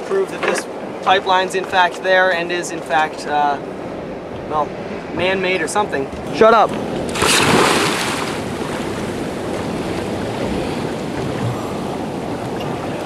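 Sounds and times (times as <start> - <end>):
water sloshing and fizzing: 6.8 - 13.0
diver splashing into water: 7.0 - 10.2.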